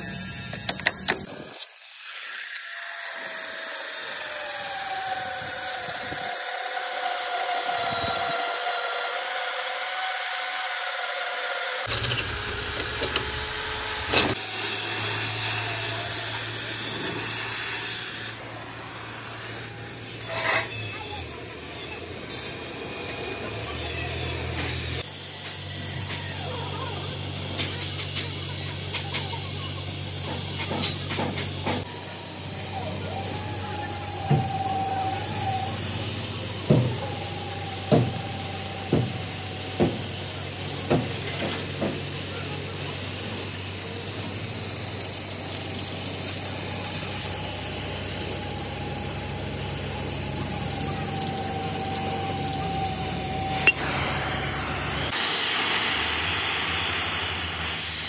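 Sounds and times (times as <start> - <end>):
thin whine: 30.6 - 57.9.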